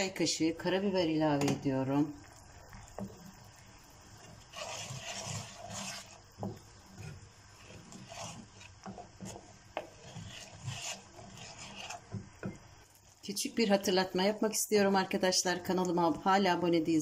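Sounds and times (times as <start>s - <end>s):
wooden spoon scraping a pan: 2.6s - 13.5s.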